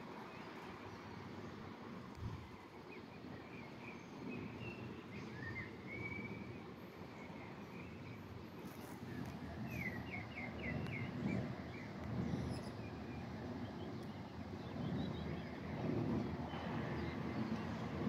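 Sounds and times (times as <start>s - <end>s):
songbirds chirping and whistling: 2.9s - 18.0s.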